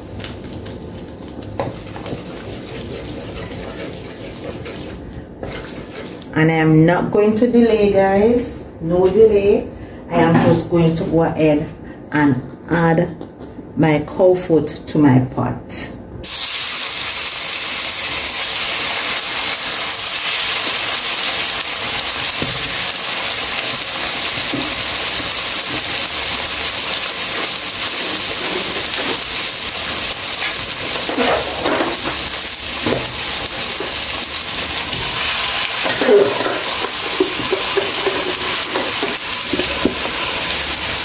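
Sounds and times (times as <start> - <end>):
meat sizzling in hot oil: 16.2 - 41.0.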